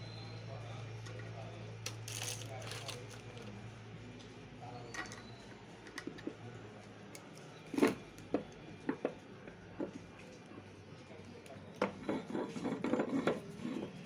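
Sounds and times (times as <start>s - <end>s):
metal parts clicking and knocking: 1.8s - 3.5s.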